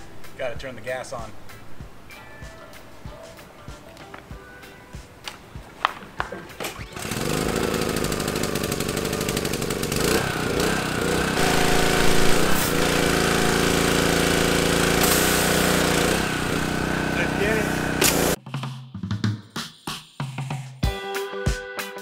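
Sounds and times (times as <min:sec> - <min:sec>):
pressure washer engine running: 0:06.9 - 0:18.4
starter clicks: 0:18.0 - 0:18.4.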